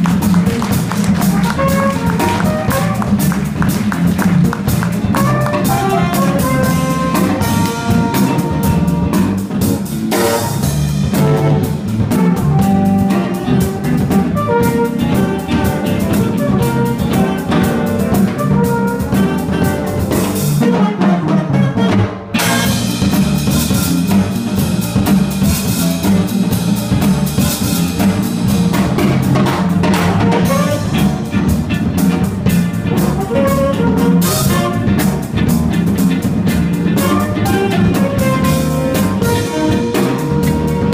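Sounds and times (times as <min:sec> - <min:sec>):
electric guitar: 0:00.0 - 0:21.1, 0:21.8 - 0:40.9
bass guitar: 0:00.0 - 0:40.9
drum kit: 0:00.0 - 0:40.9
flugelhorn: 0:01.2 - 0:03.4, 0:05.1 - 0:09.3, 0:10.1 - 0:23.1, 0:29.8 - 0:31.2, 0:33.0 - 0:35.2, 0:36.9 - 0:40.9
saxophone: 0:01.2 - 0:03.5, 0:05.1 - 0:09.3, 0:10.1 - 0:23.0, 0:29.9 - 0:31.2, 0:33.2 - 0:35.2, 0:36.9 - 0:40.9.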